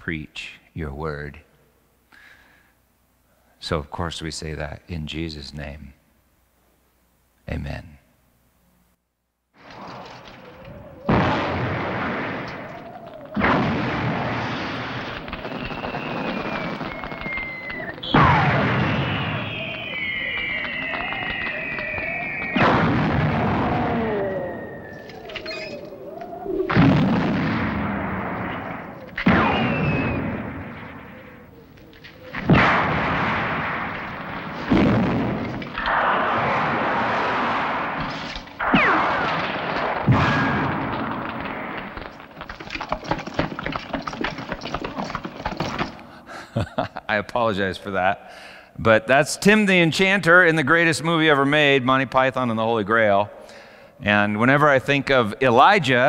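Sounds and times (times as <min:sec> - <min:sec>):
explosion blasts rumbling: 0:09.6 - 0:45.5
faint falling whistle: 0:09.8 - 0:13.5, 0:14.6 - 0:27.0, 0:28.2 - 0:32.4.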